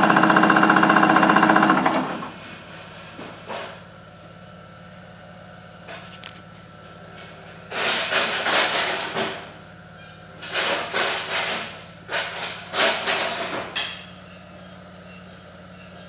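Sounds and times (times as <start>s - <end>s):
bandsaw motor humming: 0.0s - 2.4s
harsh handling noise: 10.4s - 14.7s.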